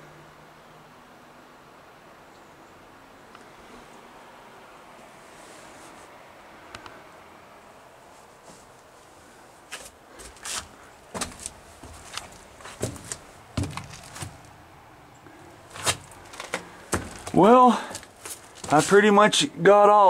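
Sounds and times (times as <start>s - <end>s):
footsteps and knocks on metal: 11.2s - 14.5s, 15.7s - 19.0s.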